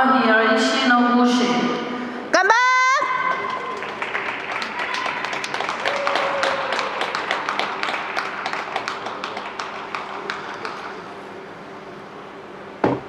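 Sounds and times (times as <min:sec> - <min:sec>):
sparse applause: 0:03.2 - 0:11.0.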